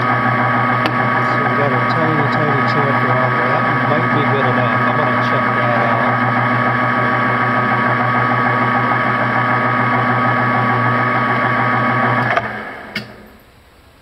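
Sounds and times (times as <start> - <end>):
metal lathe motor hum and whine: 0.0 - 13.3
lathe switch click: 12.2 - 13.2.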